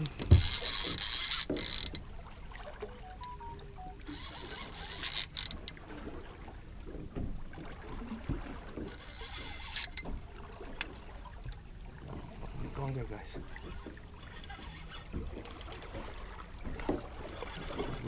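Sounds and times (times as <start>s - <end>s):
fishing reel whirring: 0.0s - 2.0s, 3.1s - 5.8s, 8.9s - 10.1s, 13.6s - 15.2s
reel clicks: 0.0s - 2.1s, 2.8s - 6.1s, 8.8s - 10.1s, 12.8s - 15.5s.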